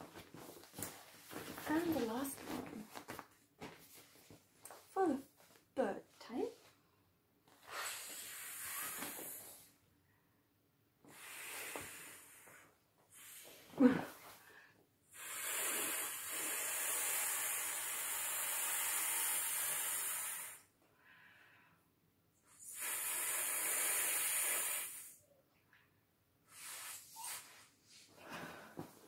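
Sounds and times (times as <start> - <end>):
breath blown into inflatable valve: 7.6 - 9.7, 11.1 - 14.0, 15.1 - 20.7, 22.5 - 25.2, 26.5 - 27.7.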